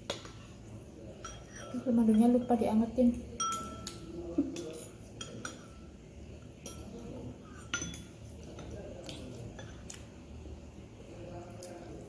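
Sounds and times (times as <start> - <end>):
cutlery clinking on ceramic dishes: 1.1 - 2.6, 3.3 - 5.9, 6.6 - 10.0.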